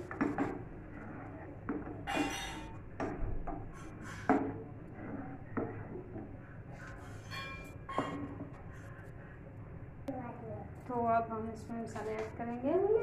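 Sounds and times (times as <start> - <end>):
plastic spoon knocking and scraping pot: 0.0 - 8.6.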